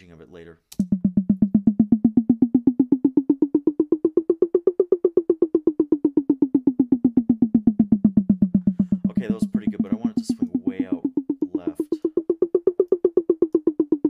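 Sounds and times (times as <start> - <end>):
rapid pitched drum hits: 0.8 - 14.0.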